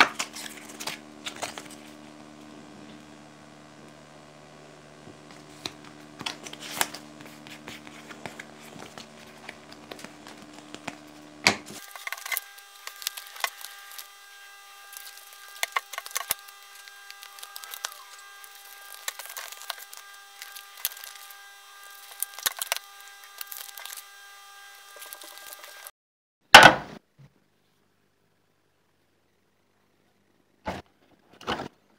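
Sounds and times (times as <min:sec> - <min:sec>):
card being folded and creased: 0:00.0 - 0:02.0, 0:05.2 - 0:25.9.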